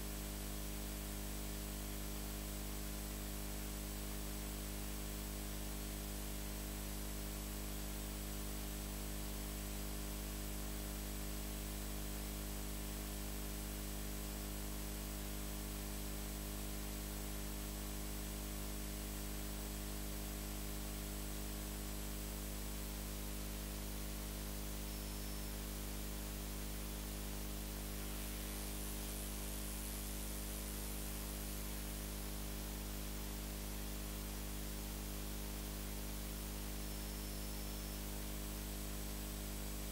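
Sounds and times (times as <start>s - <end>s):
low electrical hum: 0.0s - 39.9s
constant hiss: 24.2s - 39.9s.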